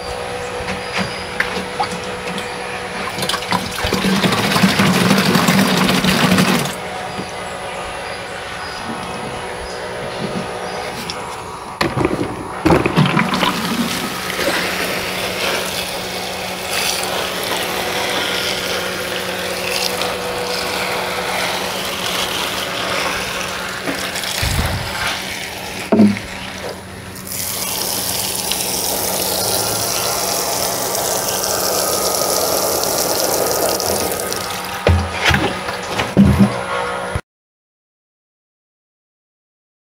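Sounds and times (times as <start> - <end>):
water running and splashing: 3.0 - 6.8, 12.7 - 35.1
watering can pouring onto rubber mat: 11.8 - 14.9
handling knocks: 34.8 - 36.6.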